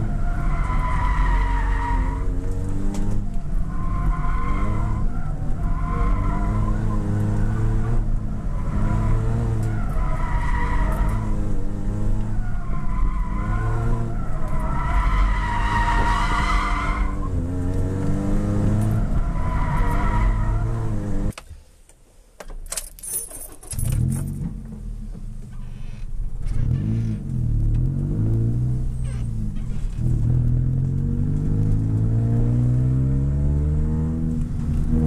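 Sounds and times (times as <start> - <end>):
tires squealing: 0.0 - 21.3, 25.5 - 27.4, 28.0 - 35.0
car engine revving: 0.0 - 21.4, 26.4 - 35.0.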